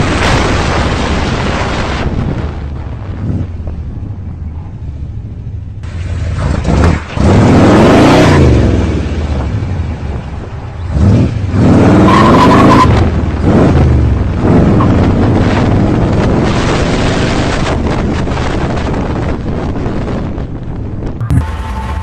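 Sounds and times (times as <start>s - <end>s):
car engine accelerating hard: 5.8s - 17.6s.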